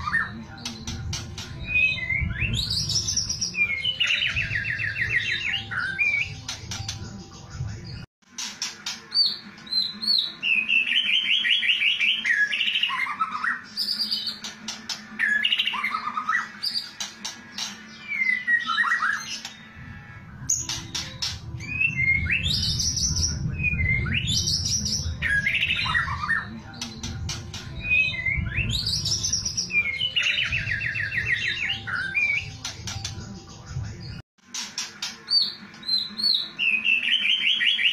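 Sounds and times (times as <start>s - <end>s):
bird whistled song phrases: 17.6s - 19.5s, 20.7s - 26.9s, 27.8s - 32.7s, 35.3s - 37.9s.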